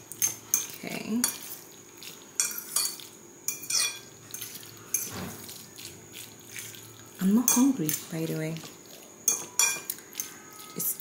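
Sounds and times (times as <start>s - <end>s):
fork clinking in ceramic bowl: 2.4s - 6.8s, 7.4s - 8.0s, 9.2s - 10.8s.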